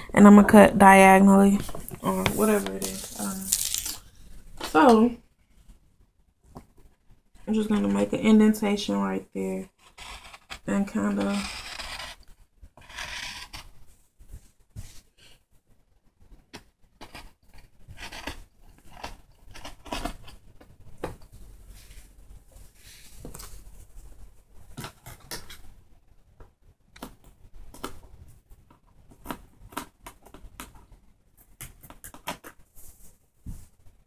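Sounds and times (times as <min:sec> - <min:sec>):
fabric rustling: 0:01.6 - 0:04.6.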